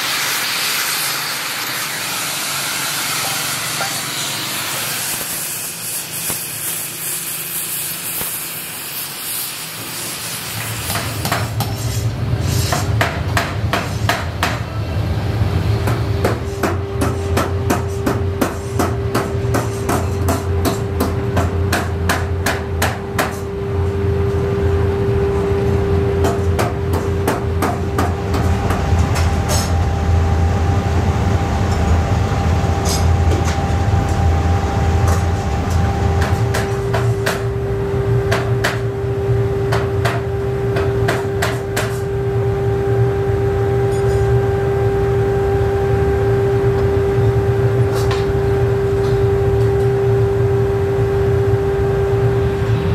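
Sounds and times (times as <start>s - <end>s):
cutting torch hissing: 0.0s - 12.8s
low humming machine drone: 0.0s - 52.9s.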